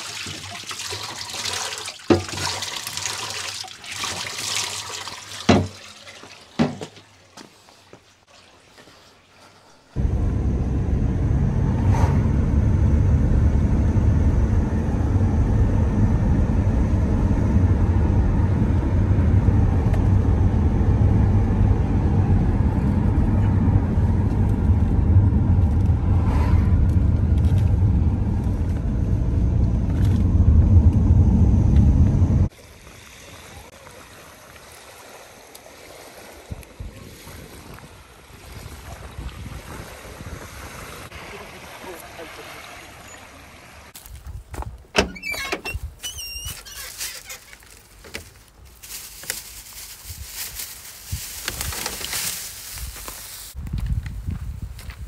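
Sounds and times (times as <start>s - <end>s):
small waves lapping: 0.0s - 10.0s, 32.5s - 44.0s
car cabin road rumble: 10.0s - 32.5s, 43.8s - 48.4s.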